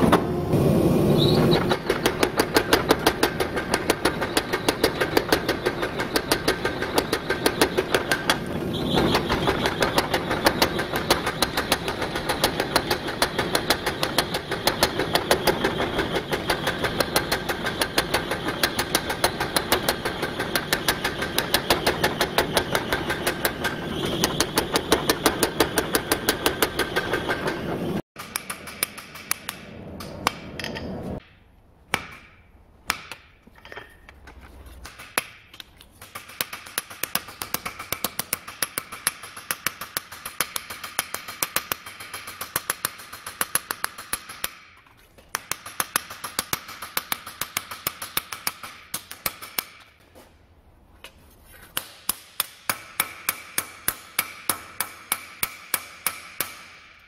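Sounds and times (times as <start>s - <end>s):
steady machine noise: 0.0s - 28.0s.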